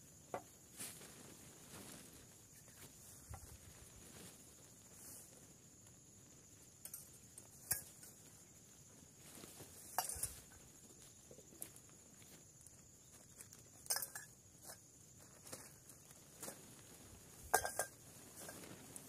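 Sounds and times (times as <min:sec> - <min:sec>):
faint high hiss: 0:00.0 - 0:13.2
tent fabric and poles clattering: 0:00.0 - 0:19.0.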